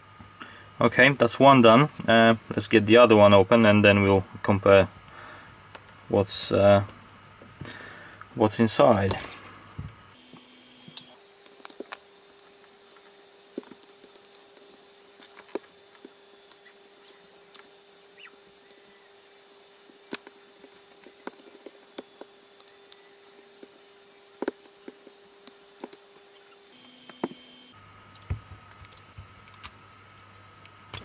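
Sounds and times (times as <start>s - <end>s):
cutters clicking and crunching metal: 10.2s - 27.5s.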